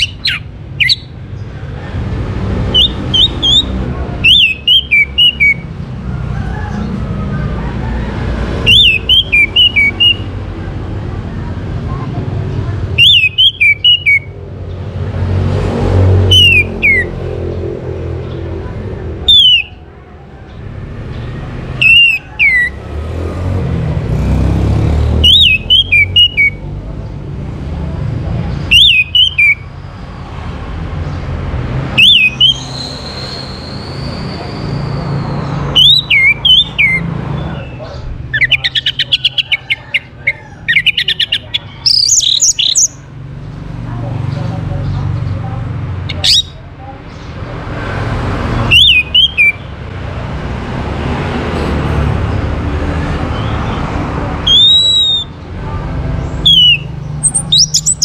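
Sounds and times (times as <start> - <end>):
thrush singing: 44.4 - 58.0.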